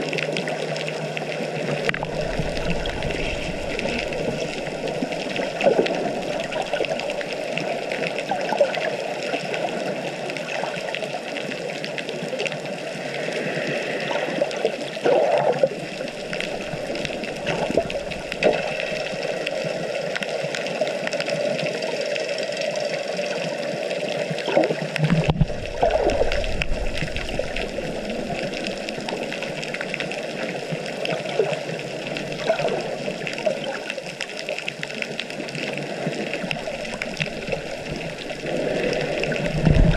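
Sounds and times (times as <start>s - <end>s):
water rushing underwater: 0.0s - 39.9s
deep water whoosh: 1.6s - 8.0s, 13.6s - 19.7s, 24.9s - 30.7s, 36.1s - 39.9s.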